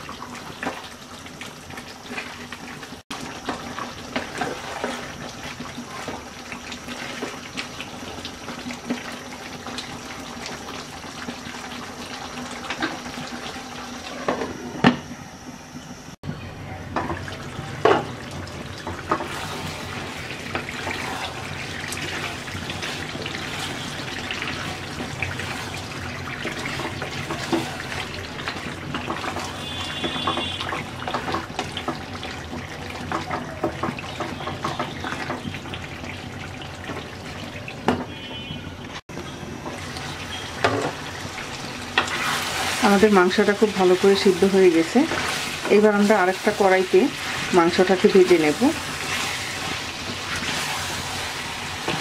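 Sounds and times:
curry bubbling in a pan: 0:00.0 - 0:14.2, 0:17.3 - 0:38.6, 0:39.7 - 0:52.0
wooden spatula stirring and knocking: 0:18.8 - 0:35.8, 0:40.6 - 0:52.0.

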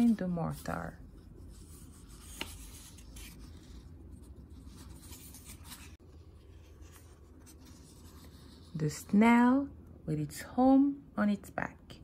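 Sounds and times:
hand rustling paper pages: 0:00.0 - 0:08.8.

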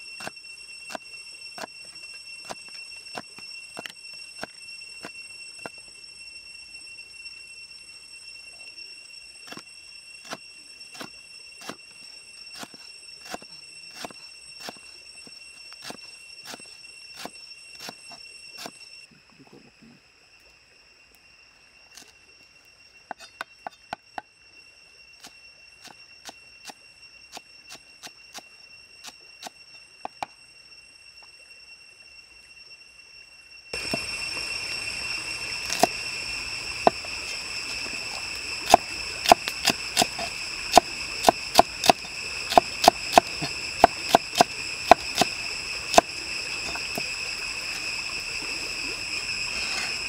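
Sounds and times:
cleaver chopping on wooden block: 0:38.7 - 0:45.3.

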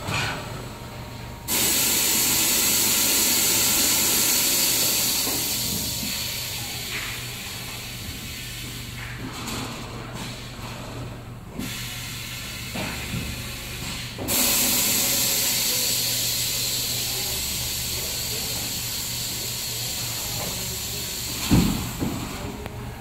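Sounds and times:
low machine hum: 0:00.0 - 0:23.0
loud hiss of rushing air: 0:01.5 - 0:06.3
thump: 0:21.5 - 0:22.2.

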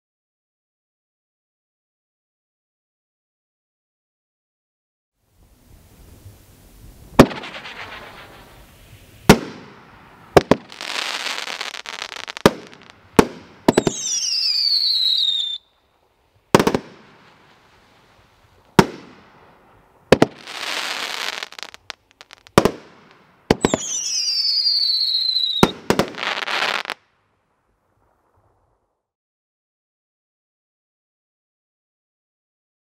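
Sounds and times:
fireworks crackling: 0:05.4 - 0:27.1
falling firework whistle: 0:06.0 - 0:15.9, 0:20.1 - 0:27.0
fireworks bangs: 0:06.1 - 0:27.0.

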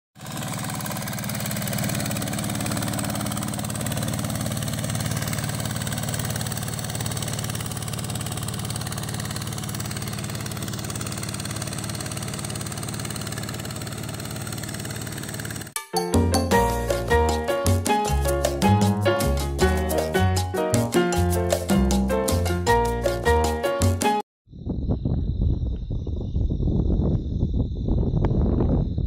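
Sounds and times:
diesel engine running under load: 0:00.2 - 0:15.8.

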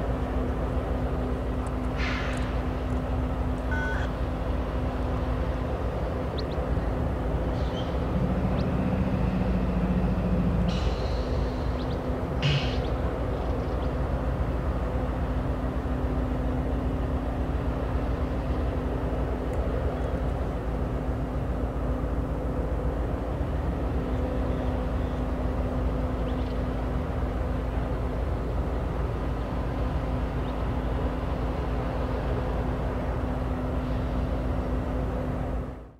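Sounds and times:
diesel locomotive engine drone: 0:00.0 - 0:35.9.

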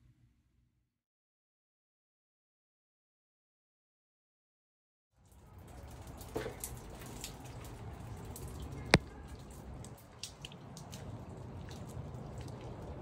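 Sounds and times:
water dripping: 0:05.2 - 0:13.0.

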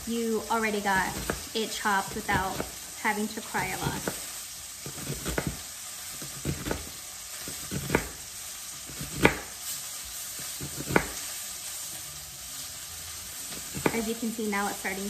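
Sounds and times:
knife chopping onion on board: 0:00.9 - 0:02.8, 0:03.6 - 0:09.6, 0:10.4 - 0:11.3, 0:13.5 - 0:14.0.

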